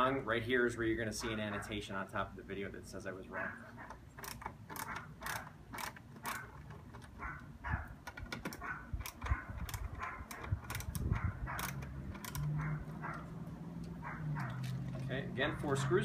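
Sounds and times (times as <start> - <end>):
ratcheting screwdriver clicks: 3.9 - 7.1, 8.0 - 12.6.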